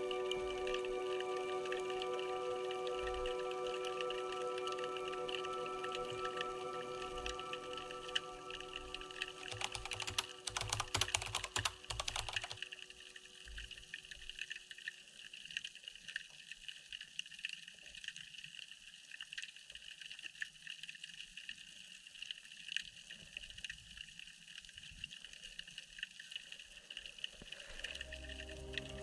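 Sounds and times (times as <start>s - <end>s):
background music: 0.0s - 13.8s, 27.8s - 29.0s
faint crackling clicks: 0.2s - 29.0s.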